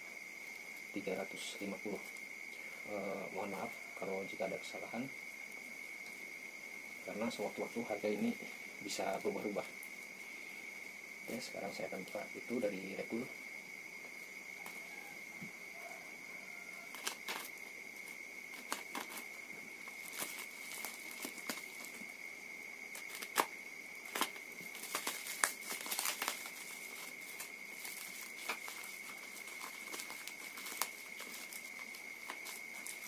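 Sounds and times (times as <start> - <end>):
packing tape peeled and torn: 16.9 - 17.6, 18.5 - 19.3, 22.9 - 33.0.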